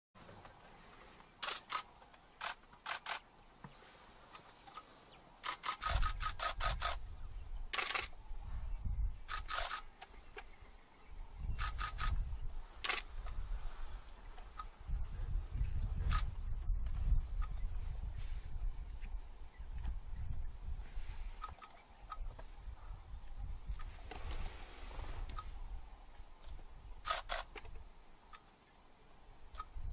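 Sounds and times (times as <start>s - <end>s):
camera shutters clicking: 1.4s - 3.2s, 5.4s - 7.0s, 7.7s - 8.1s, 9.3s - 9.8s, 12.8s - 13.1s, 27.0s - 27.7s.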